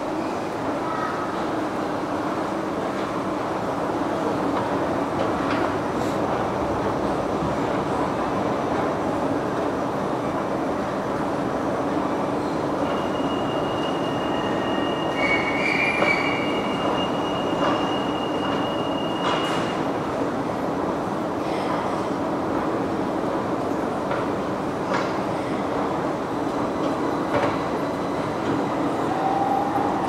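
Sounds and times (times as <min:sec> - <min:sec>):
metro train rumble: 0:00.0 - 0:30.0.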